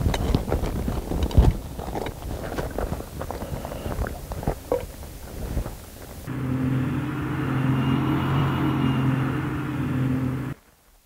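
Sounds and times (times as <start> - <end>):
low mechanical hum: 1.7 - 10.6.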